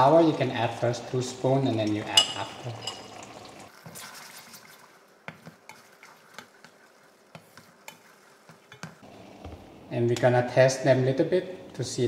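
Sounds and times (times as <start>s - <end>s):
faint sizzle: 0.0s - 3.9s, 4.8s - 12.0s
wooden spatula scraping pan: 5.3s - 9.0s.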